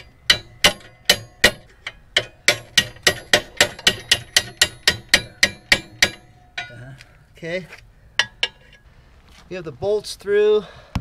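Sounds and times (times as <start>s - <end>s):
hammer striking metal bolt: 0.0s - 6.8s, 8.2s - 8.7s.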